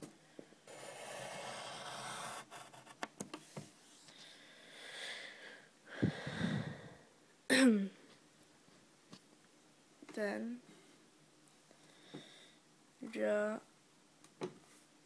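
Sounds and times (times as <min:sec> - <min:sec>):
pen scratching on paper: 0:00.7 - 0:03.0.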